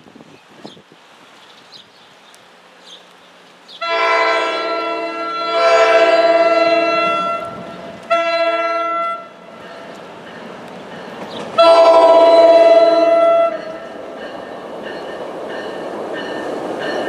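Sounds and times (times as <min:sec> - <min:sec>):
train horn blasts: 0:03.8 - 0:09.6, 0:11.6 - 0:13.8.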